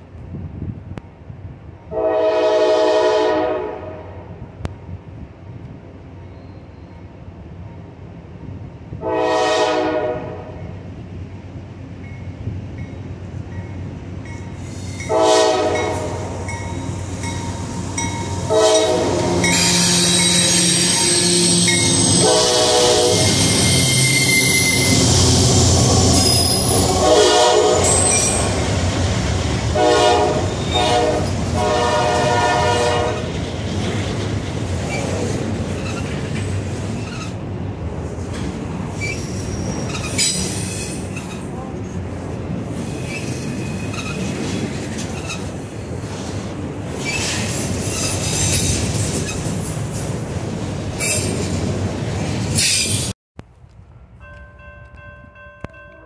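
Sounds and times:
diesel locomotives passing: 0.0 - 56.0
train horn blasts: 1.9 - 4.4, 9.0 - 10.6, 15.0 - 16.5, 18.3 - 25.0, 26.2 - 28.6, 29.7 - 33.3
wheels squealing: 19.4 - 27.0, 27.8 - 28.7, 34.9 - 37.4, 38.9 - 41.5, 42.7 - 46.0, 47.0 - 49.7, 50.9 - 51.6.

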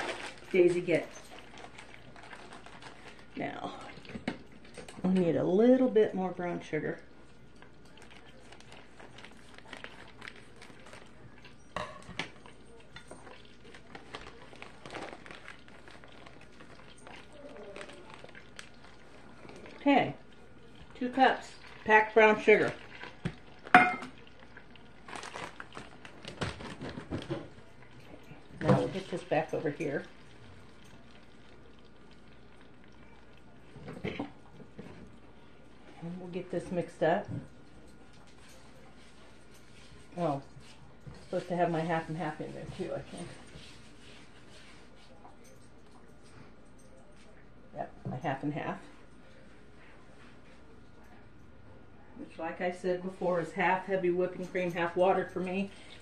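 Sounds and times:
plastic bag crinkling: 0.0 - 3.6, 8.0 - 11.4, 12.6 - 34.0.

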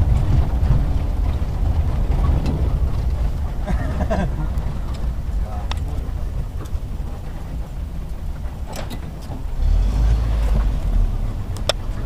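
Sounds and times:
car engine rumble from inside: 0.0 - 12.0.

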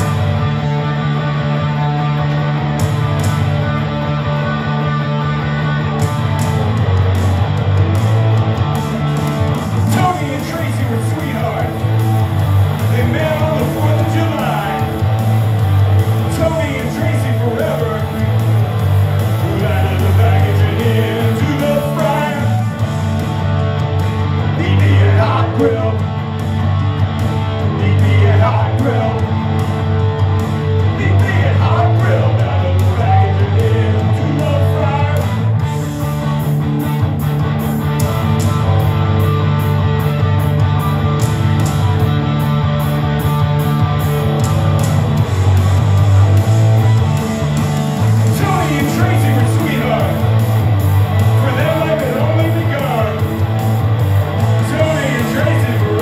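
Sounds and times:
amplified electric guitar: 0.0 - 56.0
live rock band playing: 0.0 - 56.0
person singing: 19.4 - 22.8, 24.5 - 26.1, 27.7 - 29.3, 48.3 - 50.3, 54.6 - 56.0.

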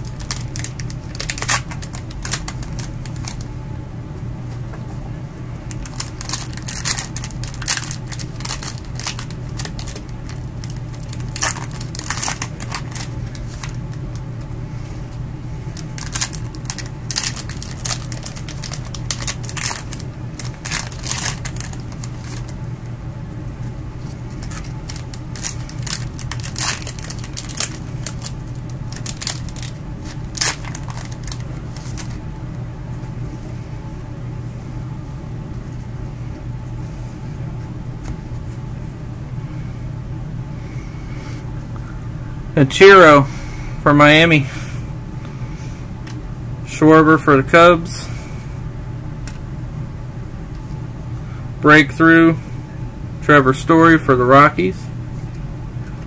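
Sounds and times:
cards clicking and sliding: 0.0 - 3.5
wrappers crinkling and rustling: 0.0 - 3.5, 5.7 - 14.2, 15.7 - 22.6, 24.0 - 32.2
steady low hum: 0.0 - 56.0.

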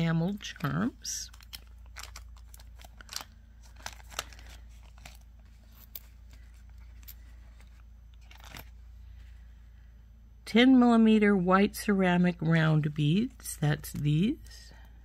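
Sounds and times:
soft rustling of bags and paper: 0.0 - 9.6
faint low hum: 0.0 - 15.0.

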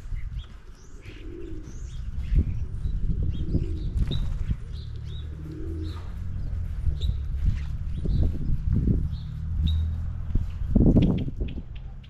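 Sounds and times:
songbirds chirping: 0.0 - 12.0
steady low rumble: 0.0 - 12.0
dove cooing: 0.7 - 7.3.

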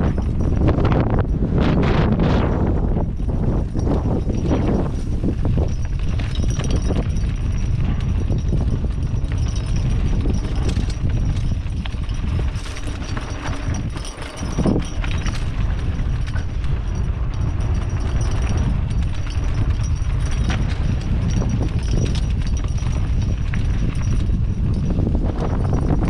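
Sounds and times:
mountain bike rattling on rough trail: 0.0 - 26.0
wind buffeting microphone: 0.0 - 26.0.

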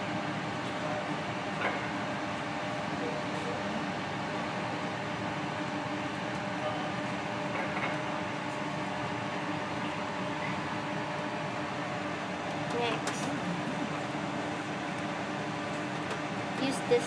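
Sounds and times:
blower fan hum and rush: 0.0 - 17.0.

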